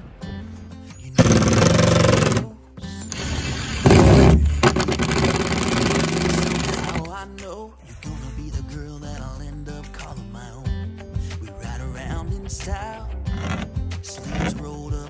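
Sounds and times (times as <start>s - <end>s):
cordless drill boring through board: 1.2s - 2.5s, 3.1s - 7.1s.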